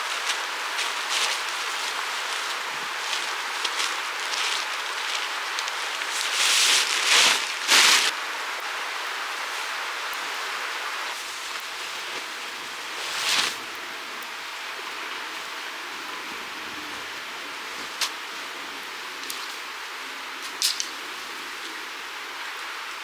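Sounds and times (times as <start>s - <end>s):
nylon sheet rustling: 0.0s - 8.1s, 11.1s - 13.7s
steady hiss: 0.0s - 23.0s.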